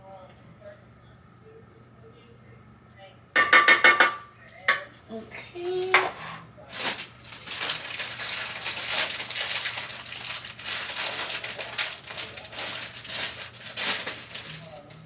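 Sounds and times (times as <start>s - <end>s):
plastic bag crinkling: 6.7s - 15.0s.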